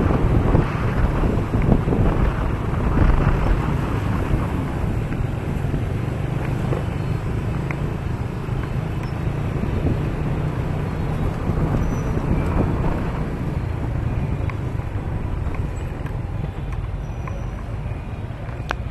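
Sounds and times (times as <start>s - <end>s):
wind on microphone: 0.0s - 16.9s.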